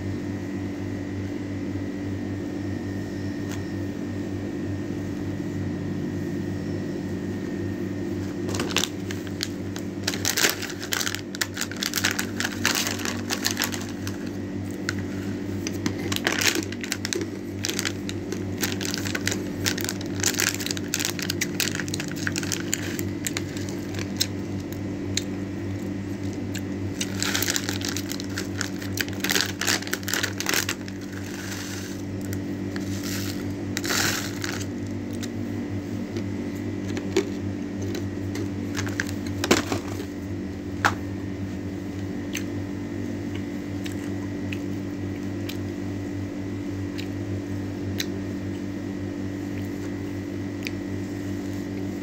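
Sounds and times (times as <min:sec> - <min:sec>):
steady low hum: 0:00.0 - 0:52.0
plastic packet crinkling: 0:08.3 - 0:24.8, 0:26.2 - 0:35.3, 0:38.6 - 0:40.1.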